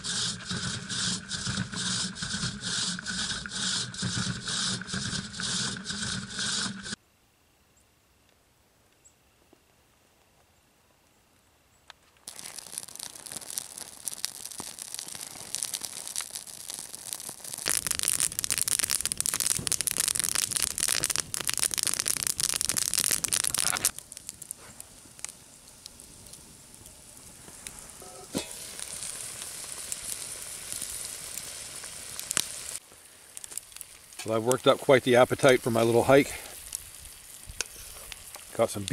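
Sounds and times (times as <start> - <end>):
campfire crackling and popping: 0.0 - 7.0, 12.2 - 38.9
meat sizzling in frying pan: 12.3 - 34.6.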